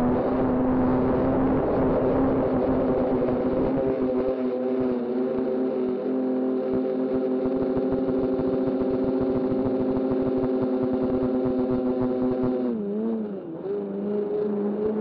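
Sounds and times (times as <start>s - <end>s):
wind rumbling on microphone: 0.0s - 4.3s.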